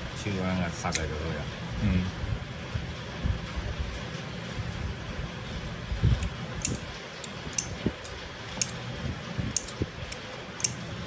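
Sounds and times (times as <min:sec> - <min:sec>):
small metal parts clicking: 0:06.2 - 0:08.8, 0:09.5 - 0:10.8.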